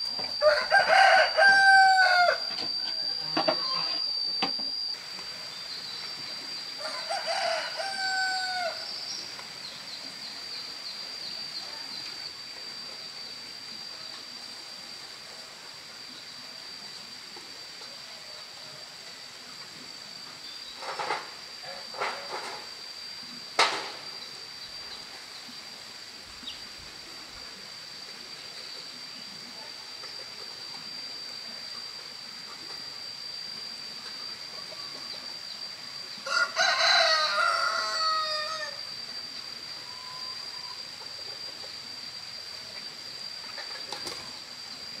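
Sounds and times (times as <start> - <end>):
high-pitched insect drone: 0.0 - 45.0
rooster crowing: 0.3 - 4.1, 6.7 - 9.1, 36.2 - 39.0.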